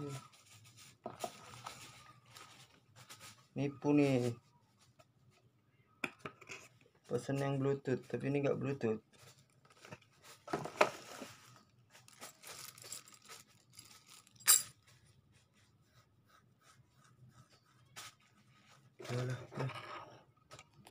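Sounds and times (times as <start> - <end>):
cardboard packaging scraping and rustling: 9.2 - 12.8.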